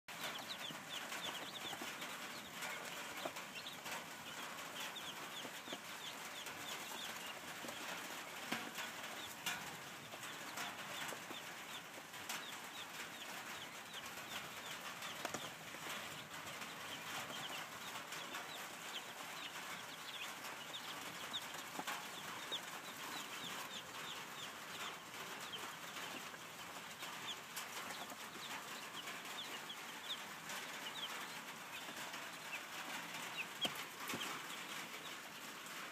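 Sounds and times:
chicks peeping: 0.1 - 35.9.

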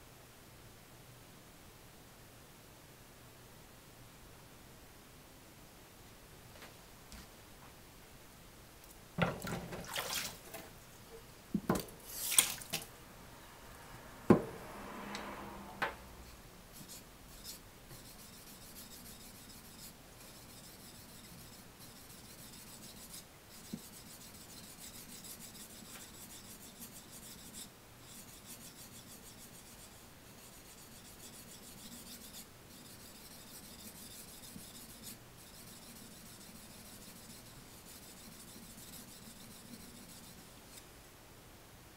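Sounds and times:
knife rubbing on whetstone: 16.3 - 40.5.

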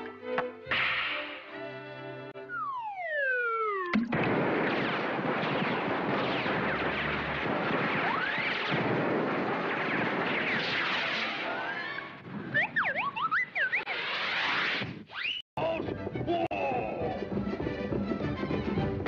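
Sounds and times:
crackling explosions: 3.8 - 13.2
cartoon bang: 3.9 - 11.4
falling whistle: 15.1 - 15.4
rising whistles: 15.1 - 15.4.

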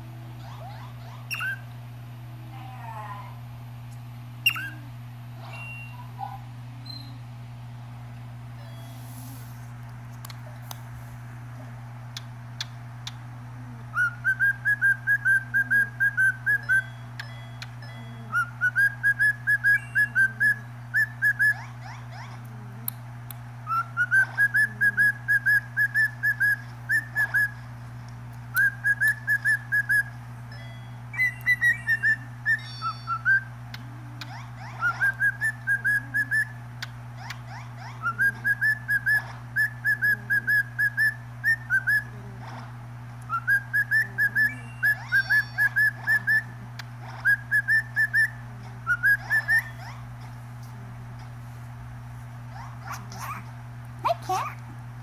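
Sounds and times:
cockatiel whistling: 1.3 - 1.6, 4.4 - 4.8, 13.9 - 17.0, 18.3 - 21.6, 23.6 - 27.6, 28.5 - 30.1, 31.2 - 33.5, 34.6 - 36.6, 38.0 - 42.1, 43.3 - 46.5, 47.2 - 50.0.

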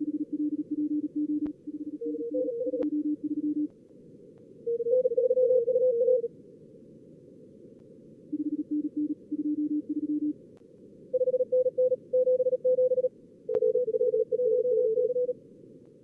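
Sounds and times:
receiver noise hiss: 0.0 - 16.0
morse code tones: 0.1 - 3.7, 11.2 - 15.3.

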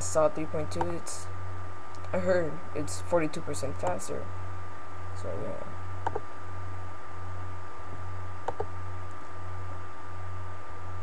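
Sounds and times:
low electrical hum: 0.0 - 11.0
computer mouse button click: 6.0 - 6.2, 8.4 - 8.7.

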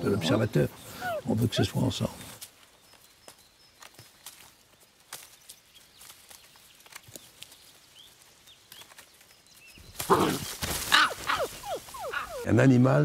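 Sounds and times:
animals padding over leaf litter: 0.3 - 12.5
animals scuffling through leaves: 0.3 - 12.5
twig snaps: 2.4 - 7.7.

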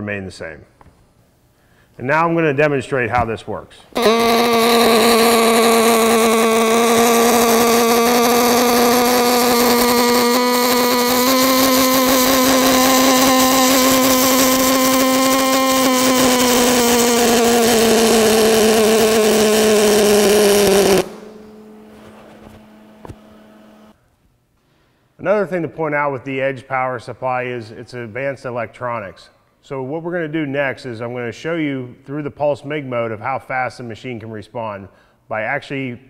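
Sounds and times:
welding arc buzzing: 4.0 - 24.0.

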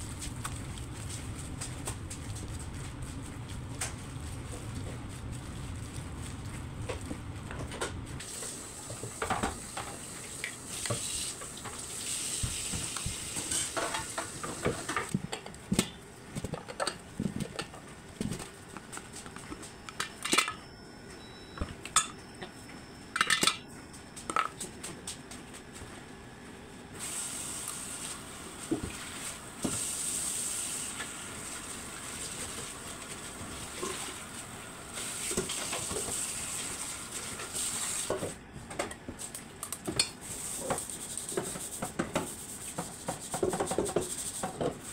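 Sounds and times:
utensils clinking against bowl: 23.2 - 23.7.

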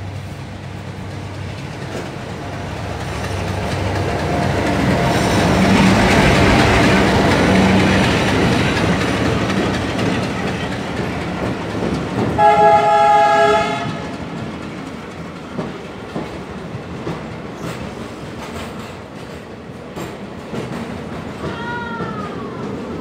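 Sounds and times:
train wheels clattering on rails: 0.0 - 23.0
multi-note train horn: 12.4 - 14.0.

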